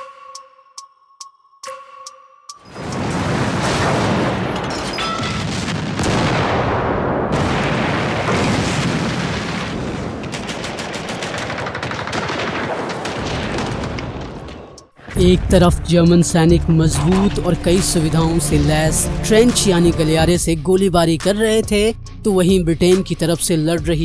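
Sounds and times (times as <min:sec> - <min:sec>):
explosions: 0:02.6 - 0:16.1
gunfire: 0:02.7 - 0:14.9
machine-gun shots: 0:03.1 - 0:14.5.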